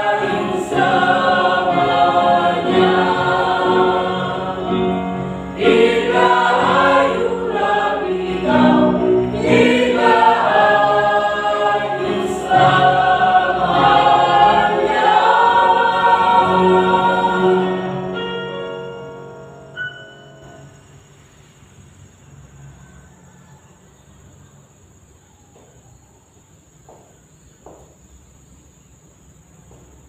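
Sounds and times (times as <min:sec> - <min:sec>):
mixed choir singing: 0:00.0 - 0:20.7.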